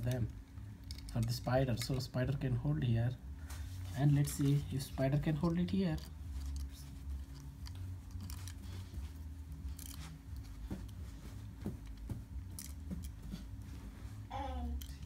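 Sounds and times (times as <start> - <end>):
plastic toys clicking and rustling: 0.0 - 2.1, 4.1 - 10.6, 11.8 - 13.2, 14.7 - 15.0
steady low hum: 0.0 - 15.0.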